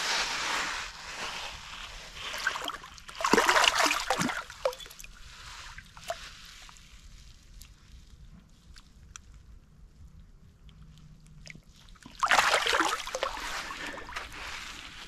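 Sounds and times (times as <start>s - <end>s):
water splashing and sloshing: 0.2s - 8.0s, 10.9s - 15.0s
water drips: 2.5s - 5.2s.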